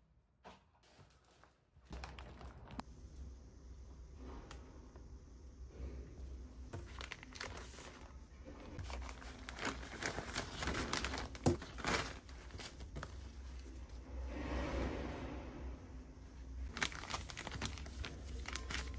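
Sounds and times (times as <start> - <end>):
plastic bags crinkling: 1.0 - 2.8, 6.7 - 13.8, 16.6 - 18.9.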